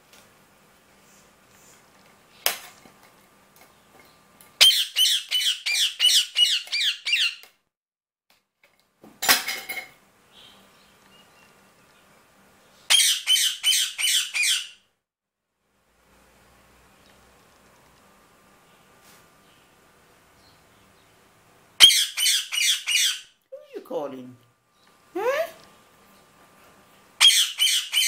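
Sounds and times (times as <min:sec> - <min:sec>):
parakeet squawking: 0:04.6 - 0:07.4, 0:12.9 - 0:14.8, 0:21.8 - 0:23.3, 0:27.2 - 0:28.0.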